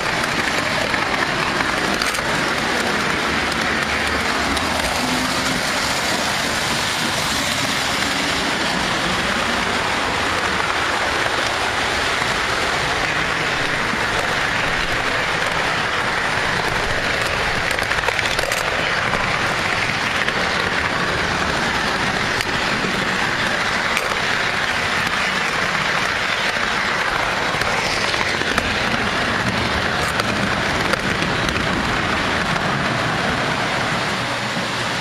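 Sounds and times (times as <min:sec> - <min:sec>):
toy train wheels rattling on rails: 0:00.0 - 0:32.8.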